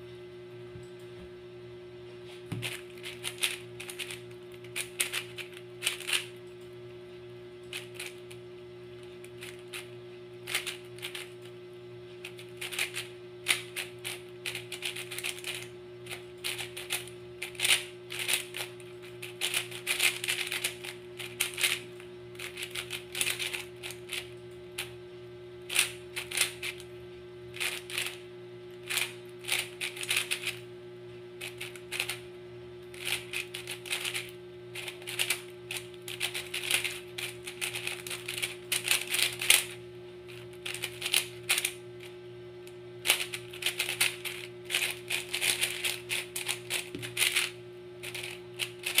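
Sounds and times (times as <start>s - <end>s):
speedcube plastic clicking: 16.5s - 18.6s, 19.4s - 20.7s, 36.1s - 39.7s, 40.7s - 41.7s, 43.1s - 47.5s.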